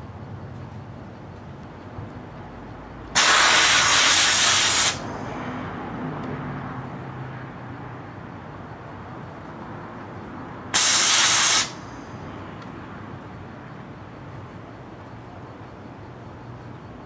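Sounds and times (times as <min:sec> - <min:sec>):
sandblaster hissing: 0:03.2 - 0:05.1, 0:10.8 - 0:11.8.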